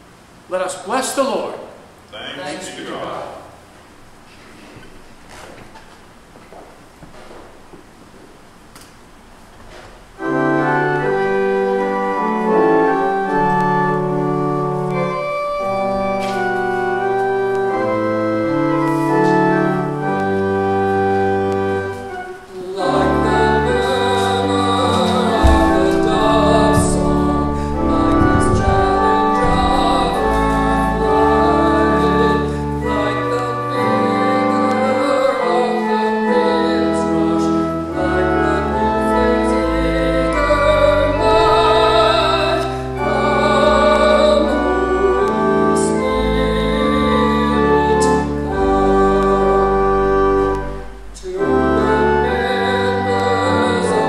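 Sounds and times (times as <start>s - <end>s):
church organ playing a hymn: 9.7s - 54.0s
person singing: 22.1s - 54.0s.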